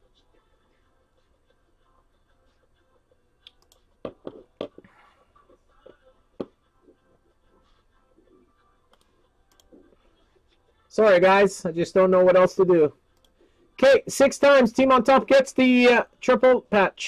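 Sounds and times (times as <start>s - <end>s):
computer mouse clicks: 3.4s - 4.9s, 8.9s - 9.9s.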